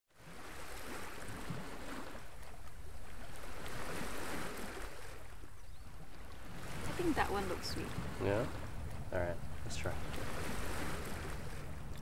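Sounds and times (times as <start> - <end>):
small waves lapping at shoreline: 0.1 - 12.0.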